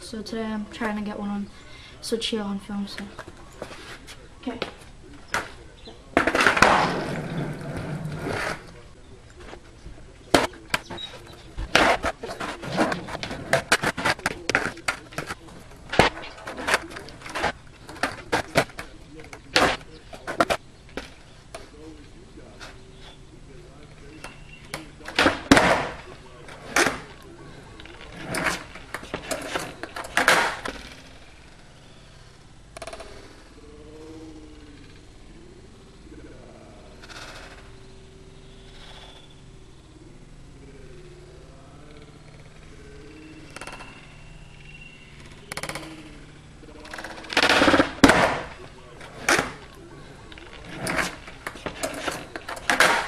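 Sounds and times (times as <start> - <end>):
skateboard clacking on concrete: 4.6 - 8.8, 10.3 - 21.7, 24.1 - 31.0, 45.2 - 46.2, 46.8 - 53.0.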